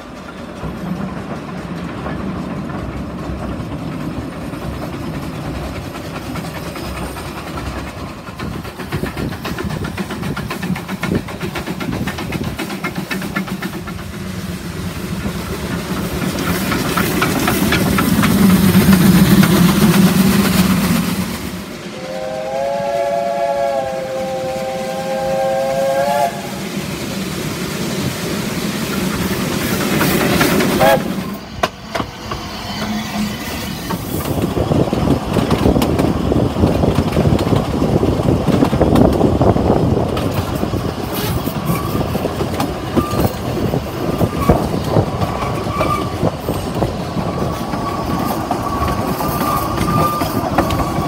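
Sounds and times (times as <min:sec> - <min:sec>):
steam locomotive running: 0:00.0 - 0:51.0
steam whistle: 0:21.9 - 0:26.6, 0:30.8 - 0:31.4.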